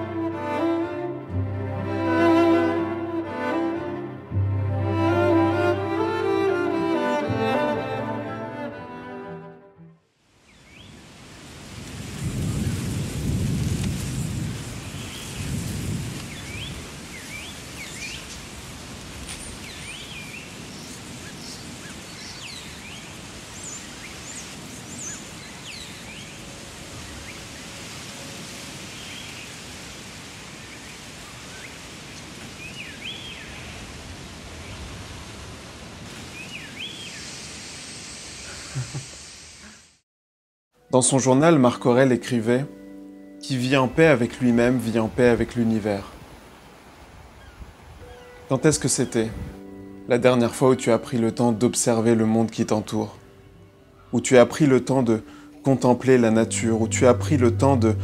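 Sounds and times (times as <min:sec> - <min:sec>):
low rush: 0:56.0 - 0:58.0.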